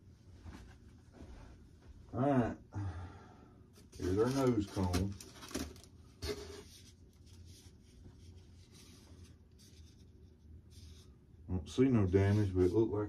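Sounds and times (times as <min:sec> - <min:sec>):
plastic and foam packaging rustling: 0:03.8 - 0:11.1.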